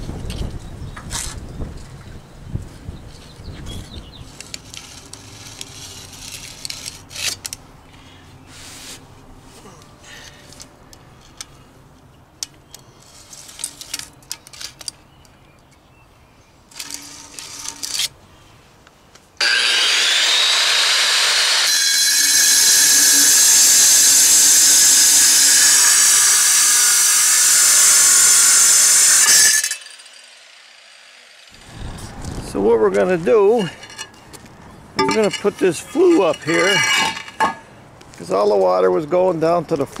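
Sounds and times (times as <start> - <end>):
angle grinder cutting tile: 19.4 - 31.6, 36.1 - 37.6.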